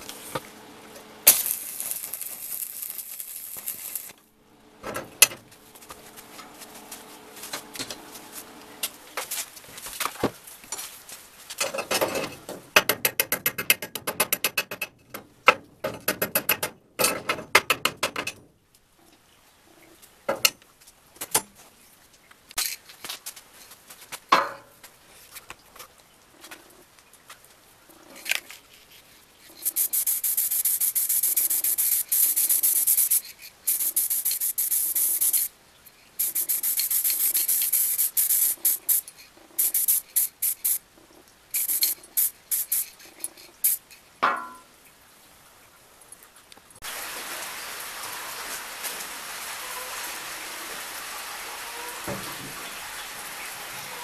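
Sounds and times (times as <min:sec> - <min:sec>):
spray paint can hissing: 0:01.2 - 0:04.2, 0:29.5 - 0:35.5, 0:36.2 - 0:40.8, 0:41.5 - 0:43.0, 0:43.6 - 0:43.8
quick rubbing strokes: 0:41.6 - 0:43.8.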